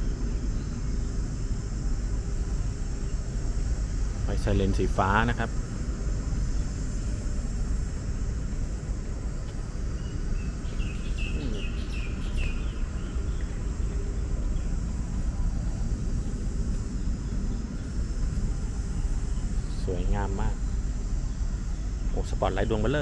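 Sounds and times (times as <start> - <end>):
outdoor rumble and hiss: 0.0 - 23.0
small bird chirping: 10.0 - 14.7.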